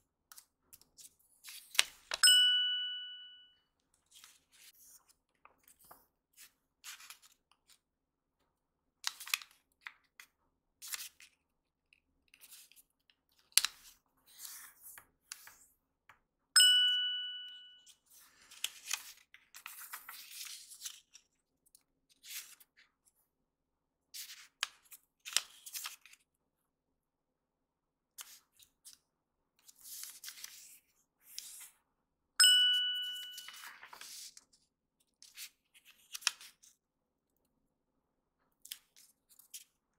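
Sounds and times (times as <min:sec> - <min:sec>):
bell-like dings: 0:02.2 - 0:03.6, 0:16.6 - 0:17.9, 0:32.4 - 0:33.7
paper folding rustles and crinkles: 0:04.0 - 0:07.9, 0:18.0 - 0:21.4, 0:24.2 - 0:26.3, 0:33.4 - 0:34.6.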